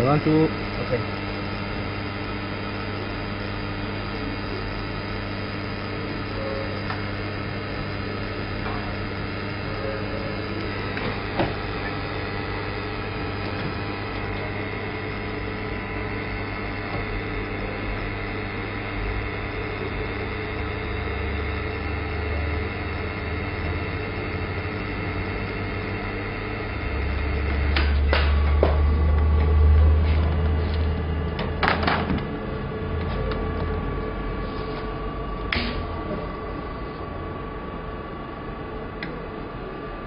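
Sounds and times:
welding arc humming and hissing: 0:00.0 - 0:40.0.

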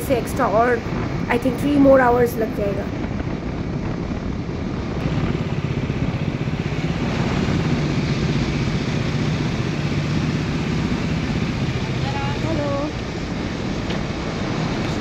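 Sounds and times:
steady rushing noise: 0:00.0 - 0:15.0
motorcycle engine running: 0:02.9 - 0:15.0.

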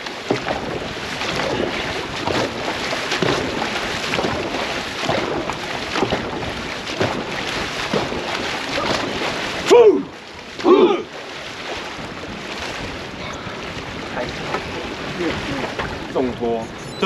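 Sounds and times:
paddles pulling through water: 0:00.0 - 0:17.0
rushing water: 0:00.0 - 0:17.0
wind on microphone: 0:00.0 - 0:17.0.

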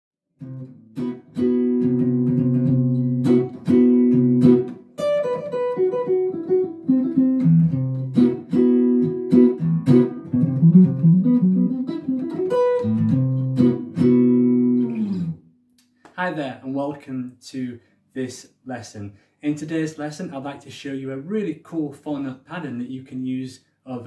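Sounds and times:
clean electric jazz guitar: 0:00.4 - 0:15.4.

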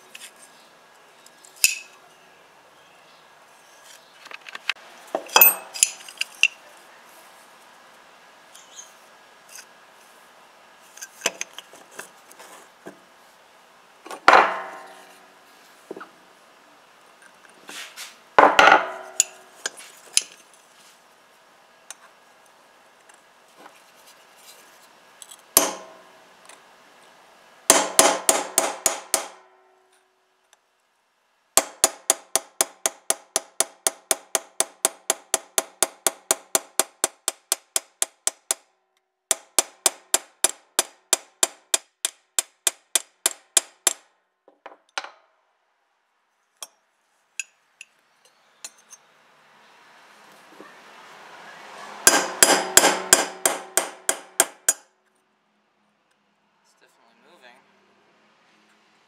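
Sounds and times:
hammer striking metal: 0:14.3 - 0:15.1, 0:25.6 - 0:26.1, 0:27.7 - 0:29.9, 0:31.6 - 0:38.7, 0:39.3 - 0:44.0, 0:52.1 - 0:54.8.

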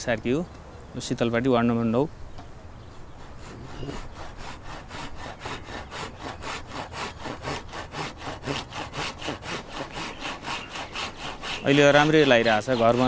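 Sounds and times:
handsaw cutting wood: 0:03.1 - 0:13.0.

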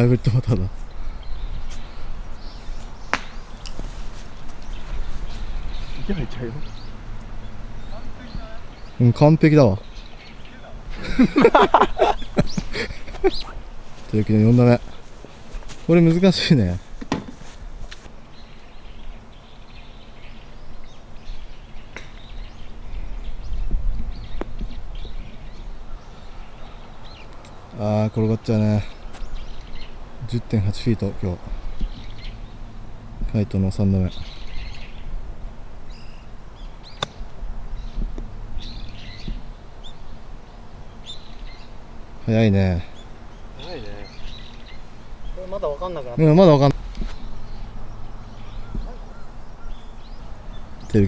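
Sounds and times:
birds chirping: 0:00.0 - 0:51.0
golf club striking ball: 0:03.0 - 0:03.8, 0:17.0 - 0:17.3, 0:36.9 - 0:37.4.

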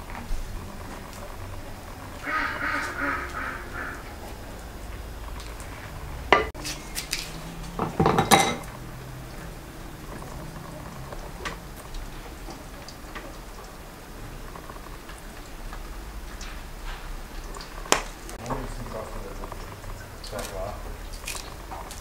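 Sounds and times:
knife and dishes clattering: 0:06.4 - 0:06.9, 0:07.8 - 0:08.7.

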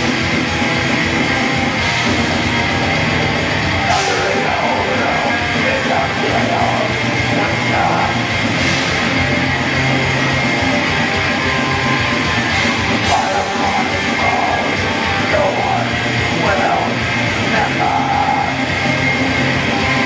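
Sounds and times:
bass guitar: 0:00.0 - 0:20.0
distorted electric guitars: 0:00.0 - 0:20.0
drums: 0:00.0 - 0:20.0
person yelling vocals: 0:03.9 - 0:08.3, 0:13.0 - 0:18.7.

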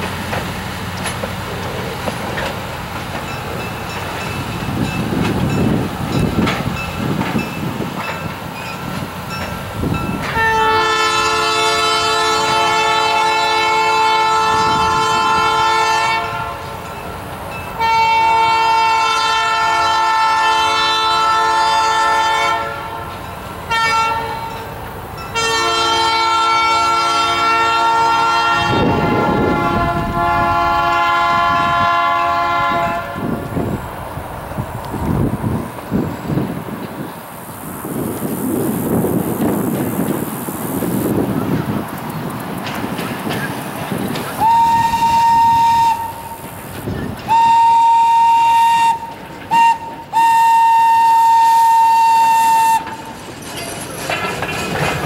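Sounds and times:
train rumbling on rails: 0:00.0 - 0:55.0
train horn blasts: 0:10.2 - 0:16.9, 0:17.8 - 0:24.7, 0:25.3 - 0:33.5, 0:44.4 - 0:46.4, 0:47.3 - 0:53.0.

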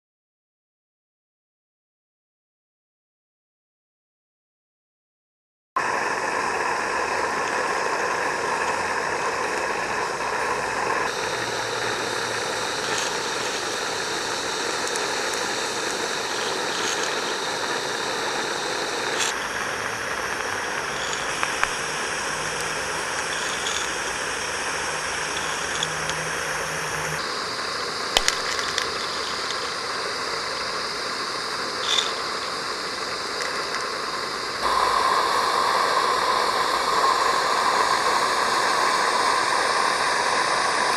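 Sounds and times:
steam locomotive hissing: 0:05.8 - 0:40.9.

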